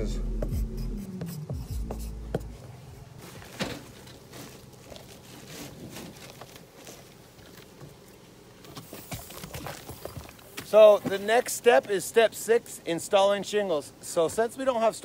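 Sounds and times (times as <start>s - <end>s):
low hum: 0.0s - 5.2s
shingles rustling and scraping: 3.2s - 8.0s.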